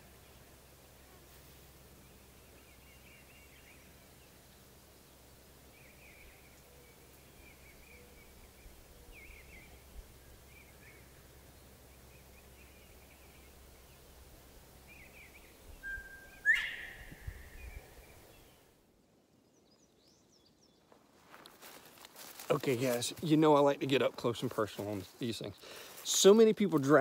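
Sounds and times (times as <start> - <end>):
outdoor background noise: 0.0 - 27.0
high bird chirps: 14.9 - 18.0.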